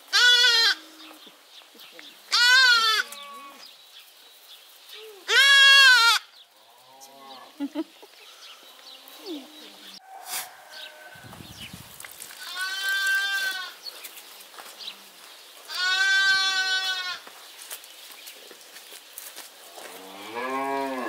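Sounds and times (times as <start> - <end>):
lamb bleating: 0.1 - 0.8, 2.3 - 3.6, 5.3 - 6.3, 12.4 - 13.8, 15.7 - 17.2.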